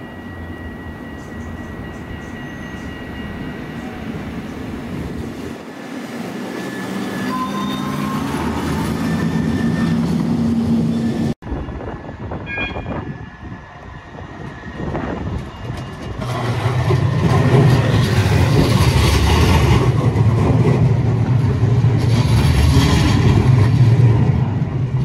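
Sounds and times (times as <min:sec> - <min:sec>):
tram wheels rumbling on rails: 0:00.0 - 0:25.0.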